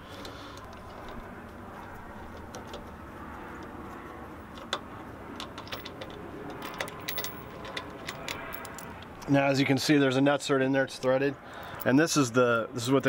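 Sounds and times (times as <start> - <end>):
steady background hum: 0.0 - 13.0
small metal clicks and clinks: 5.4 - 9.0.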